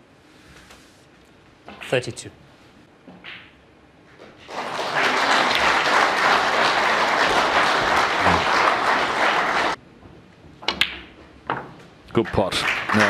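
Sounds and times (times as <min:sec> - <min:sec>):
audience applauding: 0:04.5 - 0:09.8, 0:12.2 - 0:13.0.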